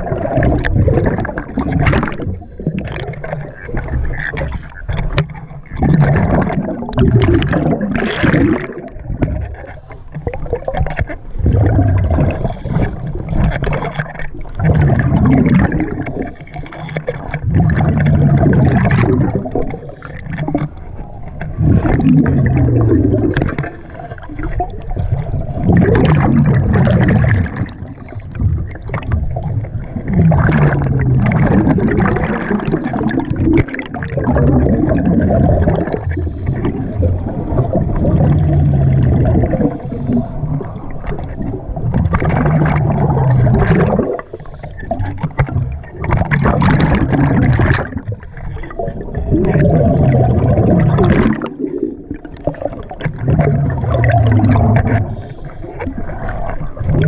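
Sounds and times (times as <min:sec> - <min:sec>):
exhaled bubbles gurgling: 0:00.0 - 0:57.0
diver inhaling through regulator: 0:36.0 - 0:37.6, 0:38.4 - 0:41.1, 0:43.1 - 0:45.1, 0:54.9 - 0:56.4.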